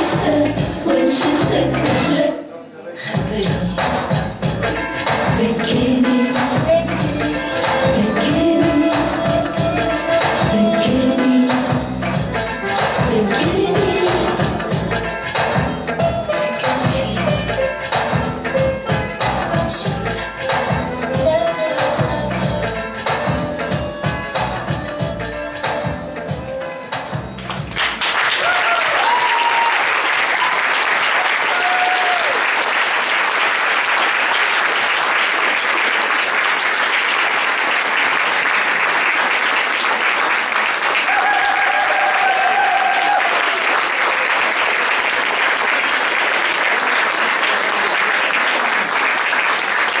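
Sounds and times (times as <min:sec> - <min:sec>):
music: 0:00.0 - 0:32.3, 0:36.4 - 0:50.0
audience applauding: 0:27.4 - 0:50.0
crowd cheering: 0:28.0 - 0:50.0.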